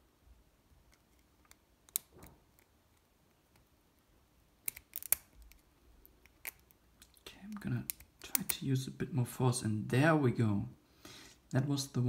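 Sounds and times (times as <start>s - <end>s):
small metallic lock picking clicks: 0.9s - 2.7s, 4.6s - 6.8s, 7.5s - 8.6s.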